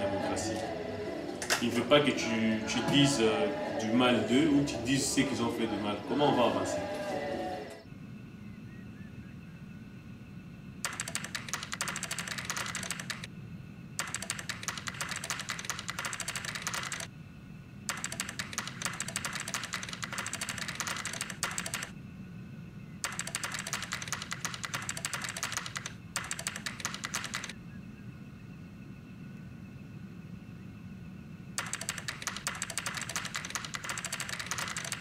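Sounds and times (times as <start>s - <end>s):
low steady hum: 0.0s - 26.4s, 27.4s - 35.0s
rapid keyboard typing: 10.8s - 13.3s, 14.0s - 17.1s, 17.9s - 21.9s, 23.0s - 27.6s, 31.6s - 35.0s.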